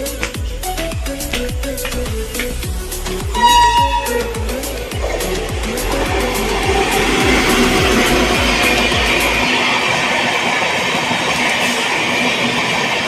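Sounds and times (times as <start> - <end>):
background music with deep beat: 0.0 - 10.2
train wheels rushing on rail: 1.2 - 13.0.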